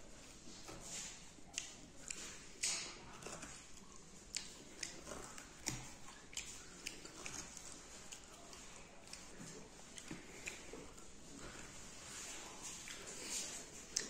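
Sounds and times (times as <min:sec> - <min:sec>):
wet chewing: 0:00.6 - 0:14.0
mouth clicks and smacks: 0:01.5 - 0:11.0.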